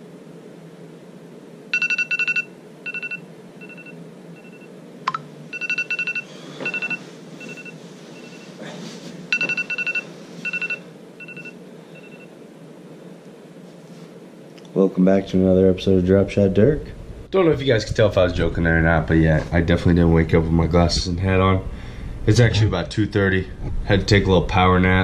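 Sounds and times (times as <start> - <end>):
electronic alarm beeping: 1.7 - 8.5, 9.3 - 12.3
bedsheets rustling: 6.4 - 10.8.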